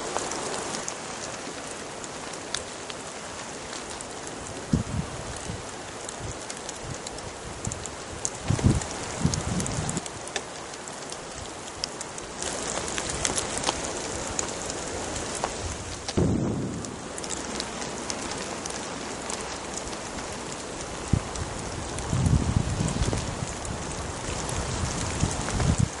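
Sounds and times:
steady rain: 0.0s - 26.0s
low rumbles: 15.8s - 23.9s.

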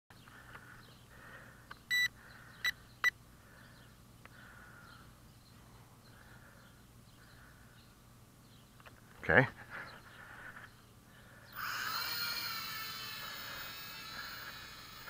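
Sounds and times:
transmitter beeping: 1.9s - 3.2s.

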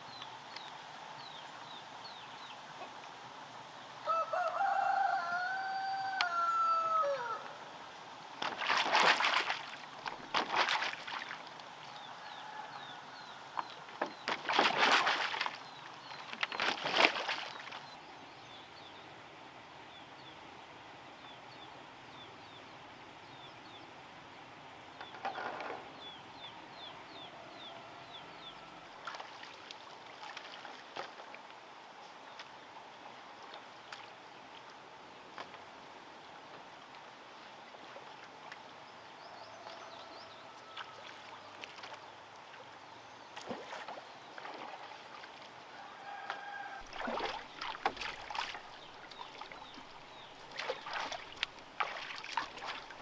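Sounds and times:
rooster crowing: 4.0s - 7.6s, 12.2s - 13.4s, 27.3s - 28.9s, 39.2s - 41.5s, 45.7s - 46.9s
loud water splashes: 8.4s - 11.4s, 14.2s - 15.6s, 16.5s - 17.8s, 46.8s - 53.0s.

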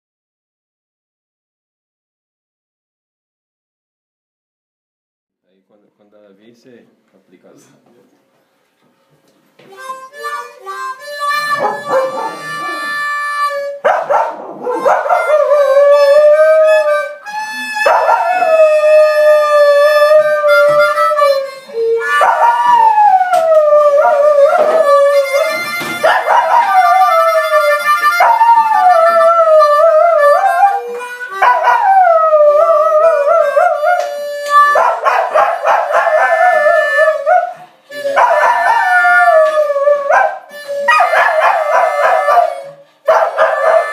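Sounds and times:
blues harmonica playing: 9.7s - 43.9s
dog howling: 11.4s - 17.1s, 17.7s - 43.9s.

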